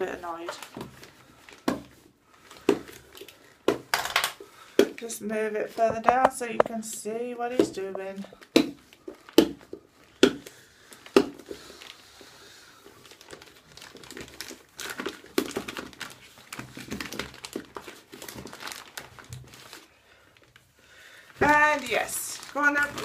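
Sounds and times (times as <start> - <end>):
plastic bag crinkling: 0.0 - 4.7, 10.8 - 23.0.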